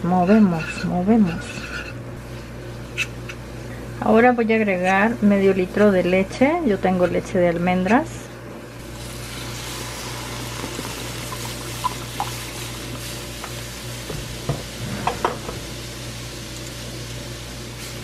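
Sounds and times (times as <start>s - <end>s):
milk sizzling in frying pan: 8.8s - 18.0s.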